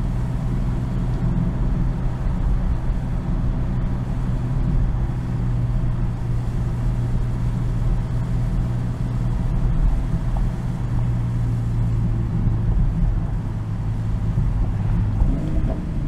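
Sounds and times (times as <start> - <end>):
car engine drone at cruise: 0.0 - 16.0
tyre and road rumble: 9.3 - 16.0.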